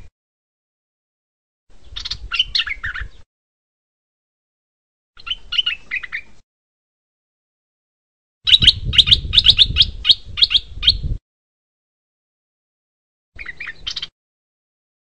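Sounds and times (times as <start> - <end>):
bird chirping: 1.7 - 3.3, 5.2 - 6.4, 8.5 - 11.2, 13.4 - 14.2.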